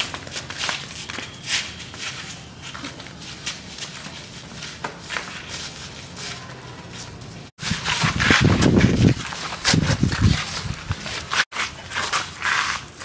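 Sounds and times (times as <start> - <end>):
footsteps in sandals on pavement: 0.0 - 13.0
rustling rumbling noise: 7.6 - 11.4.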